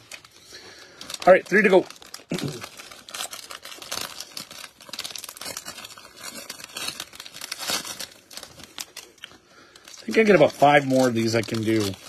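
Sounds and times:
plastic wrapper crinkling and tearing: 0:00.0 - 0:12.0.

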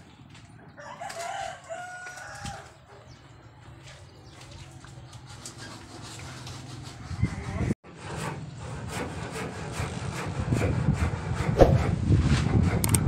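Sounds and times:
rooster crowing: 0:00.8 - 0:02.8.

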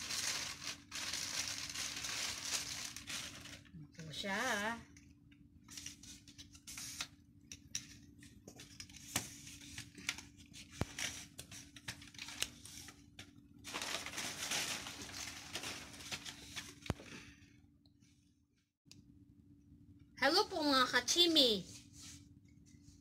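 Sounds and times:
plastic wrapping rustling: 0:00.0 - 0:04.6, 0:09.6 - 0:17.0
faint steady hum: 0:00.0 - 0:23.0.

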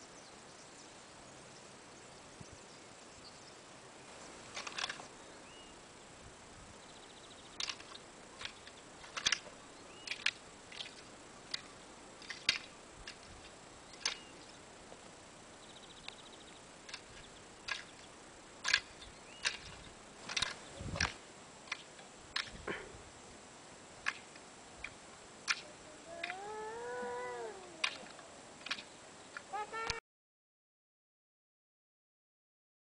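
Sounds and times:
faint bird chirps: 0:05.0 - 0:06.1, 0:09.7 - 0:10.3, 0:13.8 - 0:14.6, 0:15.5 - 0:18.2, 0:18.8 - 0:20.0
hoes striking stony soil: 0:18.6 - 0:22.8.

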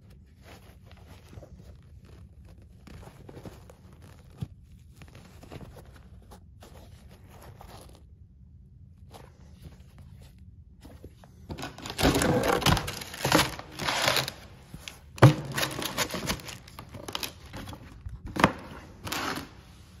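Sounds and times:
tissue paper crinkling: 0:00.0 - 0:20.0.

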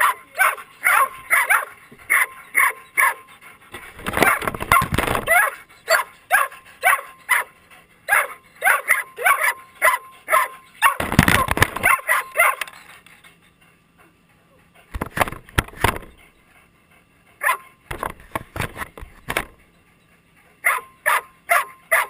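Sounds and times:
dog barking in high yips: 0:00.0 - 0:03.2, 0:04.2 - 0:07.5, 0:08.1 - 0:12.8, 0:20.6 - 0:22.0.

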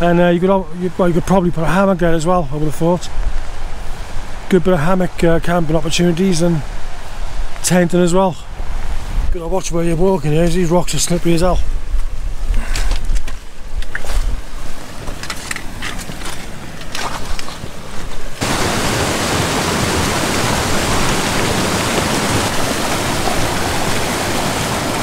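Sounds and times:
low wind rumble: 0:00.0 - 0:25.0
footsteps on rocky path: 0:11.7 - 0:24.1
trekking poles clicking on rocks: 0:12.5 - 0:18.4
fast-flowing stream rushing: 0:16.5 - 0:25.0.

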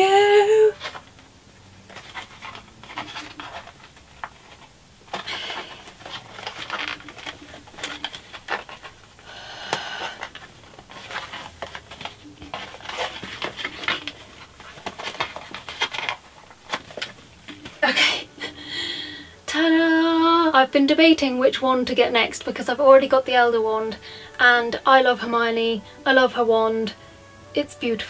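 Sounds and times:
hands tapping and rubbing a box: 0:01.8 - 0:17.9
breathing: 0:05.2 - 0:05.9, 0:09.2 - 0:10.4, 0:18.4 - 0:19.4, 0:24.0 - 0:24.4.

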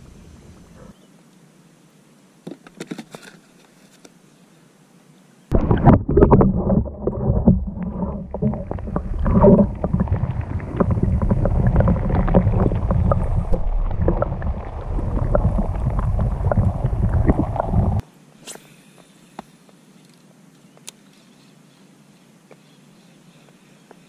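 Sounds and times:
muffled underwater rumble: 0:05.5 - 0:18.0
underwater bubbling: 0:05.5 - 0:18.0.

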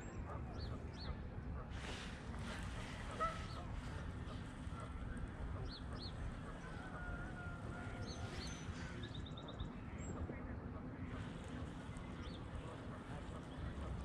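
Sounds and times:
wind rumbling on microphone: 0:00.0 - 0:14.0
waterfowl calling: 0:01.6 - 0:09.1.

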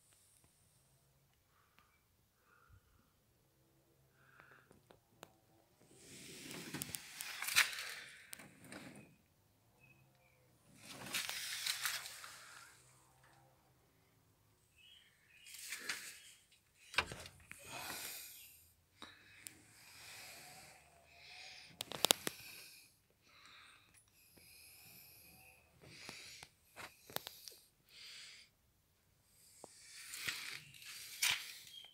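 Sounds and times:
breathy hissing puffs: 0:17.6 - 0:23.8.

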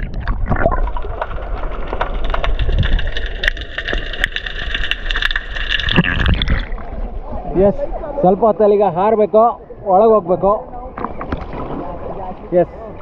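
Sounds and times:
sharp clicks and crackles: 0:00.0 - 0:06.7
low underwater rumble: 0:00.0 - 0:08.1.

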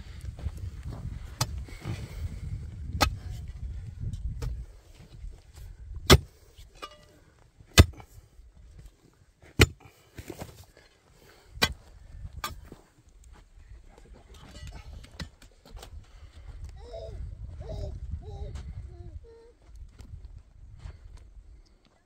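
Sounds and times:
digging bar striking stony earth: 0:01.3 - 0:03.6, 0:04.2 - 0:04.6, 0:06.0 - 0:08.2, 0:09.4 - 0:10.6, 0:11.5 - 0:12.8.

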